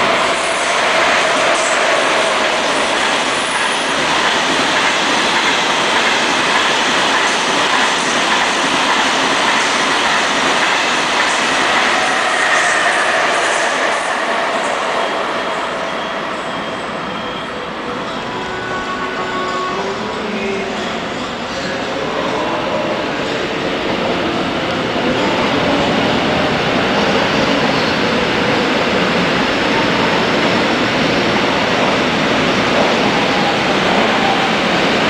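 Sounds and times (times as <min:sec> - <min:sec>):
train wheels clattering on rails: 0:00.0 - 0:16.1
faint high squeal: 0:12.0 - 0:20.0.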